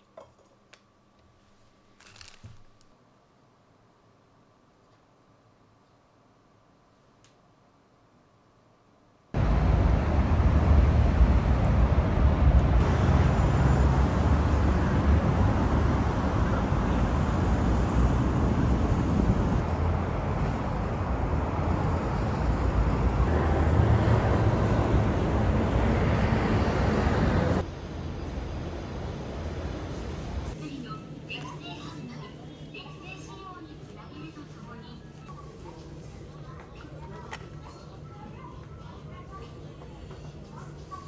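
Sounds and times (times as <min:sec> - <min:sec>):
road traffic rumble: 0:09.4 - 0:30.6.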